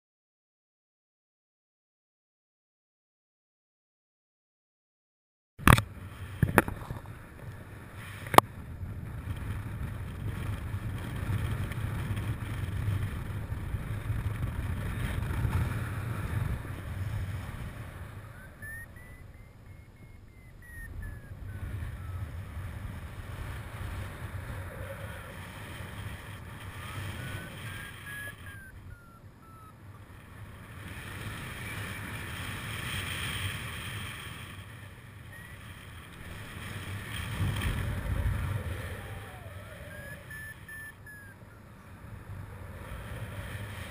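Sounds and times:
wind rumble on microphone: 0:05.7 - 0:43.9
faint high whistle: 0:38.5 - 0:41.6.

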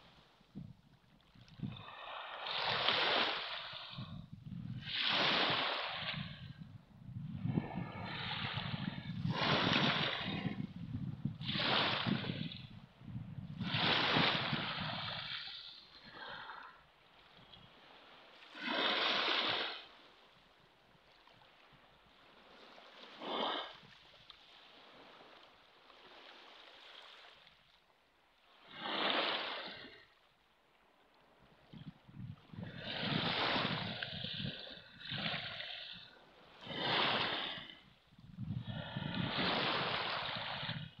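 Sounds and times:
small waves on pebble beach: 0:01.4 - 0:04.2, 0:04.8 - 0:06.4, 0:07.7 - 0:10.7, 0:11.4 - 0:12.6, 0:13.6 - 0:20.6, 0:21.2 - 0:27.8, 0:28.4 - 0:30.1, 0:32.4 - 0:38.0, 0:38.8 - 0:41.0.

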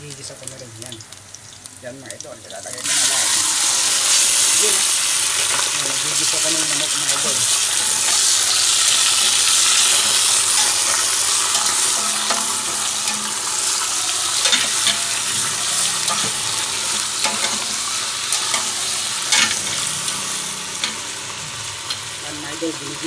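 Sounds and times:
chicken sizzling in a pot: 0:00.0 - 0:23.0
spatula clacking against pot: 0:09.7 - 0:19.9.

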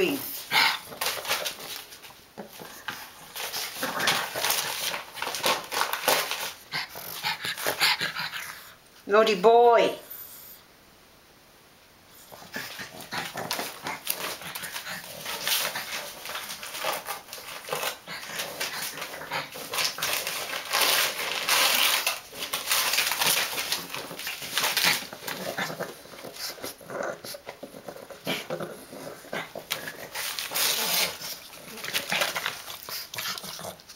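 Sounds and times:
newspaper rustling and tearing: 0:00.0 - 0:08.0, 0:12.4 - 0:33.9.

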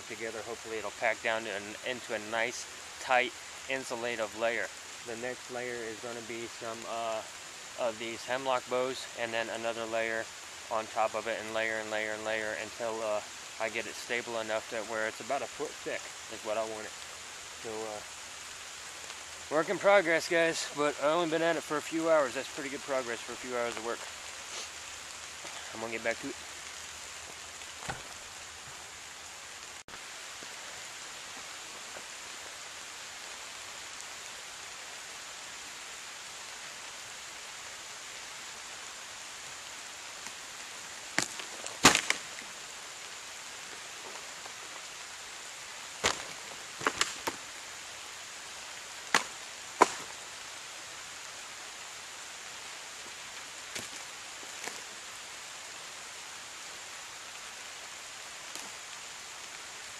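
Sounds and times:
steady hiss of rain: 0:00.0 - 0:59.9
sharp wooden cracks and knocks: 0:27.8 - 0:28.2, 0:41.2 - 0:42.5, 0:46.0 - 0:47.4, 0:49.1 - 0:50.2, 0:53.7 - 0:54.8.

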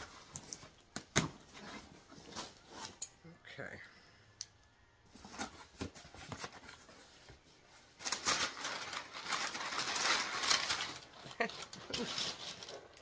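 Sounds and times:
wrapping crinkling and rustling: 0:05.1 - 0:13.0.

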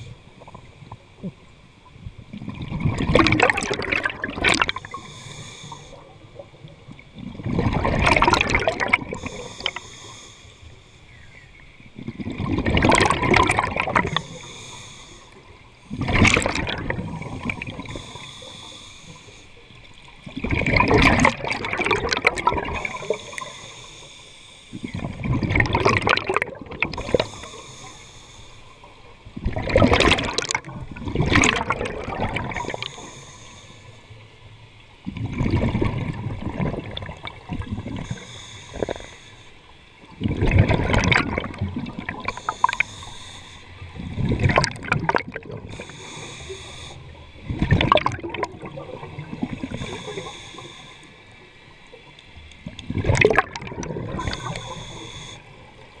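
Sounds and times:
exhaled bubbles gurgling: 0:02.2 - 0:09.9, 0:11.8 - 0:23.8, 0:24.7 - 0:28.0, 0:28.8 - 0:33.4, 0:35.0 - 0:39.2, 0:40.0 - 0:56.0
regulator breathing hiss: 0:04.7 - 0:06.3, 0:09.1 - 0:11.6, 0:14.0 - 0:16.0, 0:17.7 - 0:19.8, 0:22.7 - 0:25.0, 0:27.0 - 0:29.1, 0:32.5 - 0:34.5, 0:37.9 - 0:39.9, 0:42.2 - 0:44.1, 0:45.6 - 0:47.4, 0:49.6 - 0:51.9, 0:54.1 - 0:55.9.

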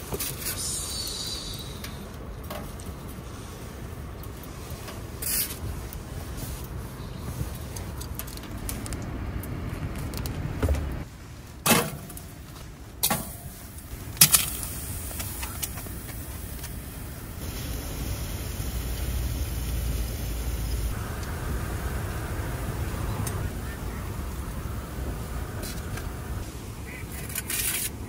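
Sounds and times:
low steady rumble: 0:00.6 - 0:11.6, 0:12.3 - 0:27.3.

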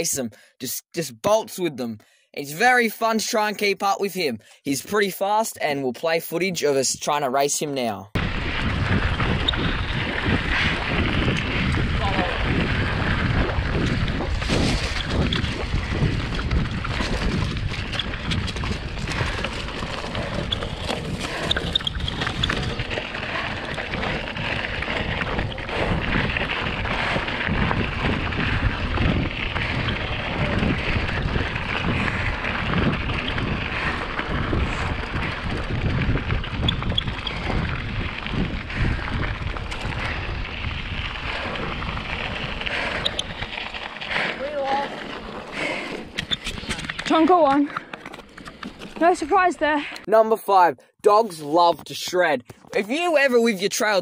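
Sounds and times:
wind buffeting microphone: 0:08.2 - 0:47.8
bike tyres rumbling on gravel: 0:08.2 - 0:49.9.

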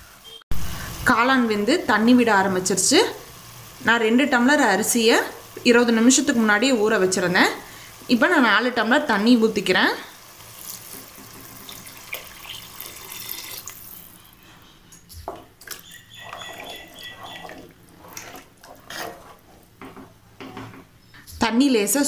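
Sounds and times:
water pouring into a pot: 0:10.4 - 0:14.3, 0:15.6 - 0:19.4
spatula stirring and splashing: 0:10.4 - 0:14.4, 0:15.3 - 0:20.9.

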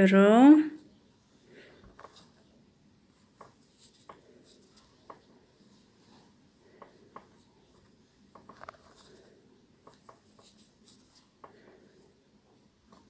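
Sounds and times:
sewing needle clicks and rustles: 0:06.7 - 0:11.9.

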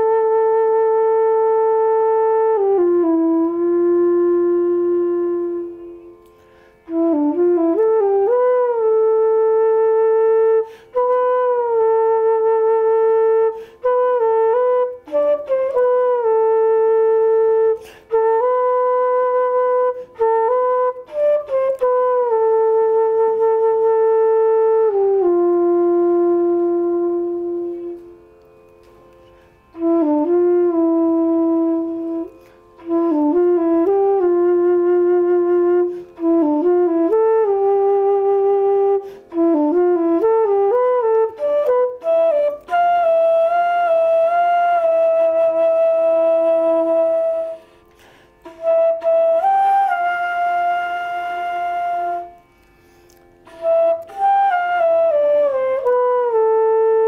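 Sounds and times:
wooden flute slow melody: 0:00.0 - 0:57.0.

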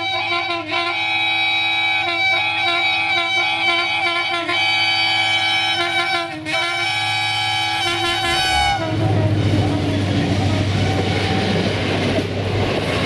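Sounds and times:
locomotive air horn blast: 0:00.0 - 0:09.6.

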